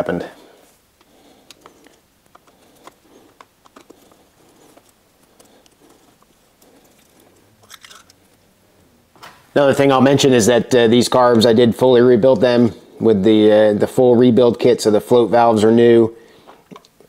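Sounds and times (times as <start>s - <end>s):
screwdriver clicks and scrapes: 4.8s - 8.3s.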